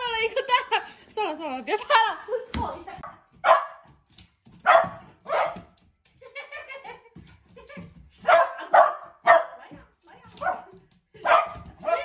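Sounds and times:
large dog barking: 3.4s - 3.8s, 4.6s - 5.7s, 8.2s - 9.6s, 11.2s - 12.0s.

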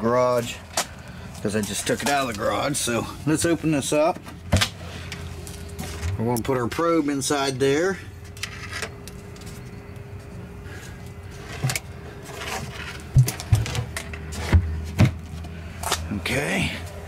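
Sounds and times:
cooler fan hum: 0.0s - 17.0s.

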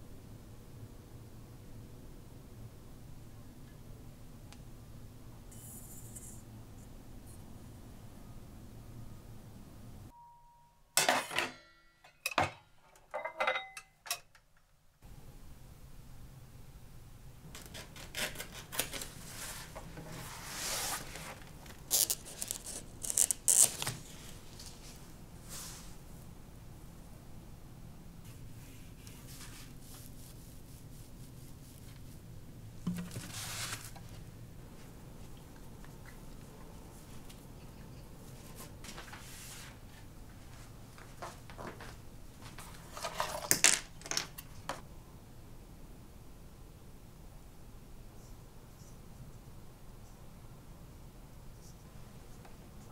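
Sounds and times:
quiet room hum: 0.0s - 52.9s
fabric and paper rustling: 17.7s - 26.0s, 28.3s - 32.2s, 32.9s - 35.3s, 38.4s - 43.6s.

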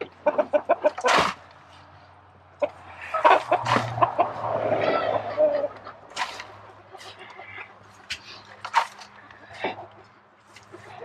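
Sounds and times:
hens clucking: 0.0s - 11.0s.

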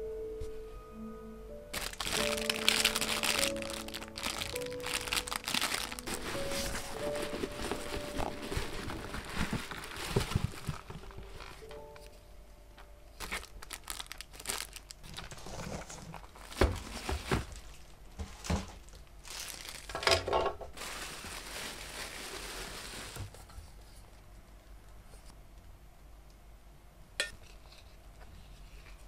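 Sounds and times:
packaging crinkling and tearing: 1.7s - 12.1s, 13.2s - 20.2s, 20.8s - 23.4s.

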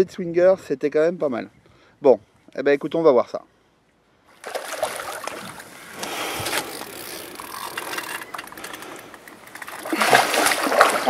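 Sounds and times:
water churning and splashing: 4.4s - 11.0s.

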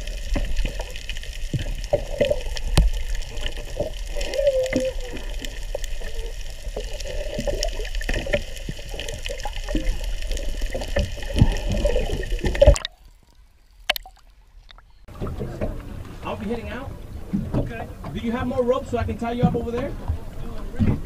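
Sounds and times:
low underwater rumble: 0.0s - 21.0s
water churning and bubbling: 0.0s - 21.0s
small clicks underwater: 0.1s - 15.0s.

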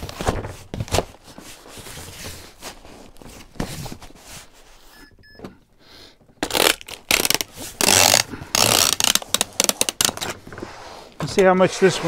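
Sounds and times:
packing tape ripping off roll: 6.4s - 10.4s.

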